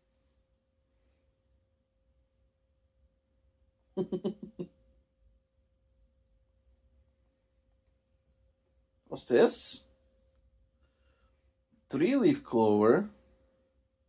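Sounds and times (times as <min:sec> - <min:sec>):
faint steady pure tone: 0:00.0 - 0:14.0
man chuckling: 0:03.9 - 0:04.8.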